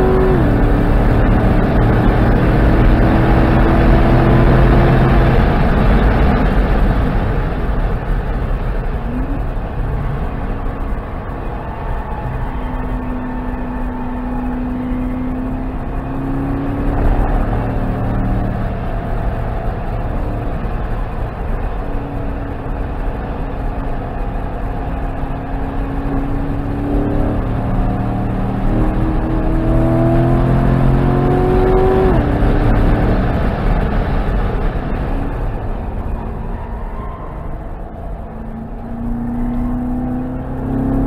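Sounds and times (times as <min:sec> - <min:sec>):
wind noise: 0:00.0 - 0:14.7
car engine revving: 0:00.0 - 0:41.0.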